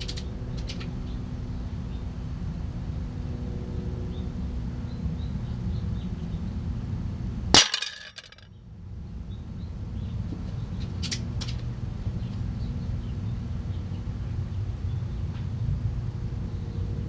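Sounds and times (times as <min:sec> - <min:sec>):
pellet striking metal cans: 0:07.6 - 0:08.4.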